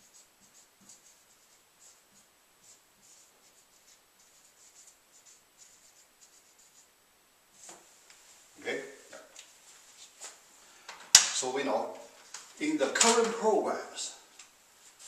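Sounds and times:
marker scratching on whiteboard: 0.0 - 6.9.

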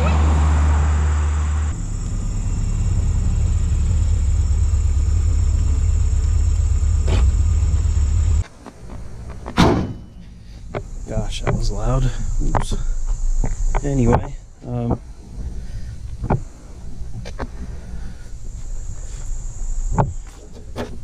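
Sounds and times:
car engine rumble: 0.0 - 21.0
car hood slamming shut: 9.6 - 10.1.

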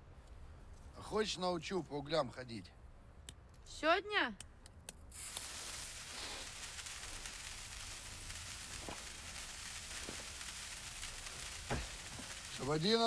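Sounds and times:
firework fuse sizzling: 5.1 - 13.0.

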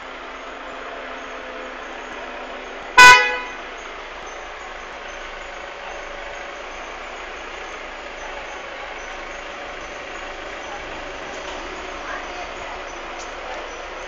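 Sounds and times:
vehicle horn toot: 3.0 - 3.6.

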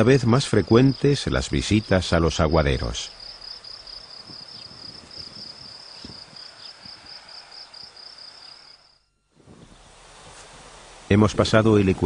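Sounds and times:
cricket chirping: 0.0 - 9.2.

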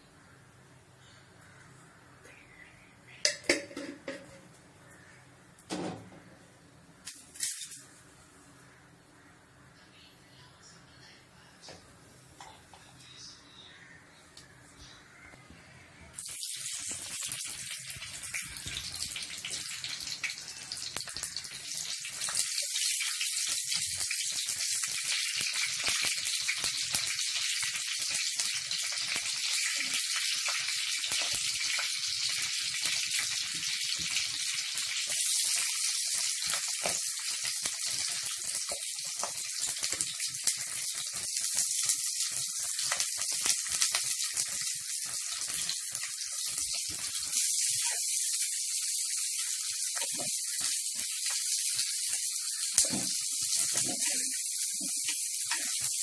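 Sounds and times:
chillies sizzling in hot oil: 7.0 - 8.3, 16.1 - 56.0.

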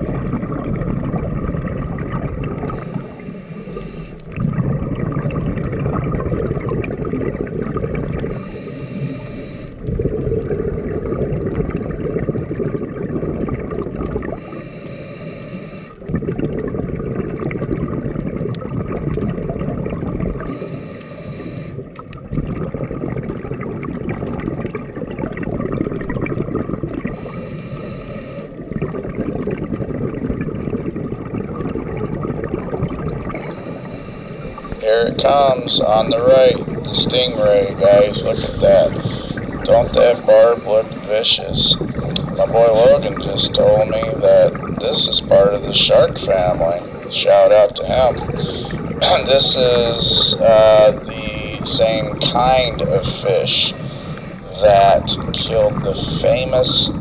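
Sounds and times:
bubbling exhaled air: 0.0 - 57.0
regulator hiss: 8.3 - 9.8.

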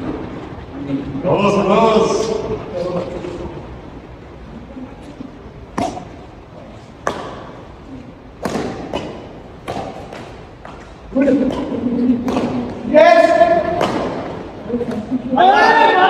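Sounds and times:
rackets hitting shuttlecock: 5.6 - 15.3.

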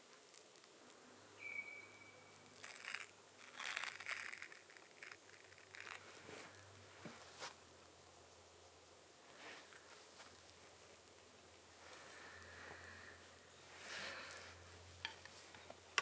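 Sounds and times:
thin high whistle-like note: 1.4 - 2.4
clothing and hands rustling: 2.5 - 7.6, 9.3 - 15.8.

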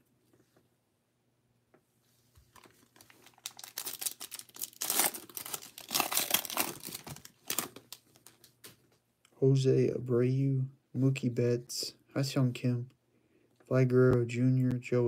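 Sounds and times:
plastic wrapper tearing and crinkling: 2.5 - 8.5.

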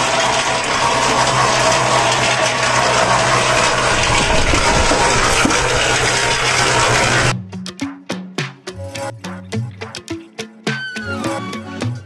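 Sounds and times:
concrete mixer running: 0.0 - 7.4.

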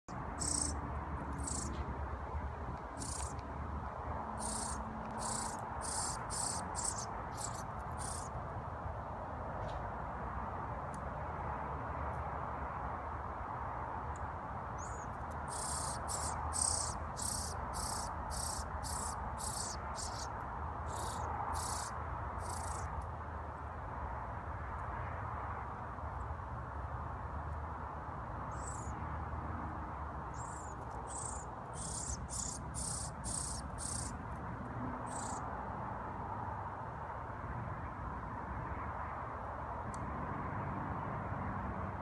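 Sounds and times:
fledgling begging calls: 0.4 - 0.8, 1.4 - 1.8, 2.9 - 3.4, 4.4 - 8.3, 14.8 - 20.3, 20.9 - 22.9, 30.4 - 34.1, 35.1 - 35.4.

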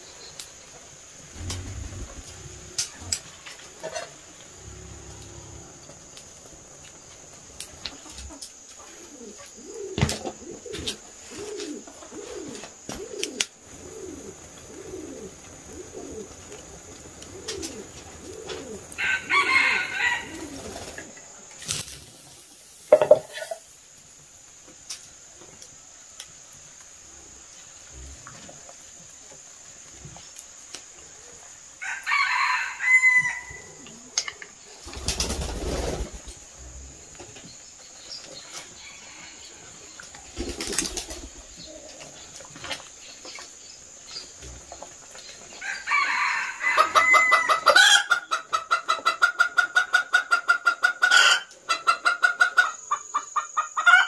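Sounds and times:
chickens clucking: 0.2 - 23.8, 46.7 - 54.0
chicken calling loudly: 18.4 - 20.8.

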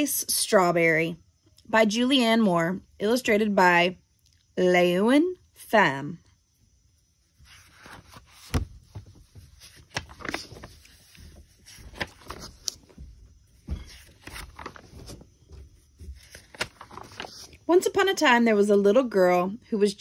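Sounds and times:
dull thumps of pages: 7.4 - 17.5
paper pages rustling: 7.4 - 17.7.

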